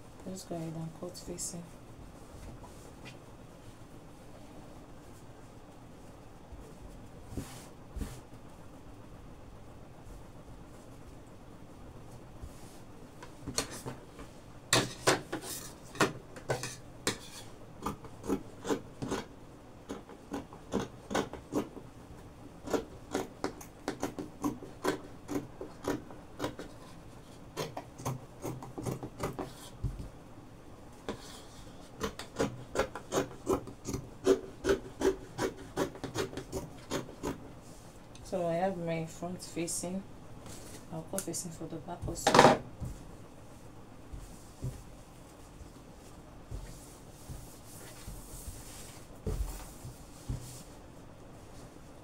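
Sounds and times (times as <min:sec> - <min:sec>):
scissors snipping fabric: 0:22.6 - 0:26.7, 0:32.0 - 0:37.4.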